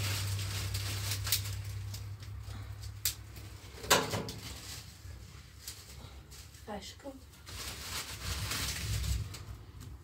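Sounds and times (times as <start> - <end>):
sticks rustling: 0.0 - 10.0
twigs snapping: 0.2 - 3.5.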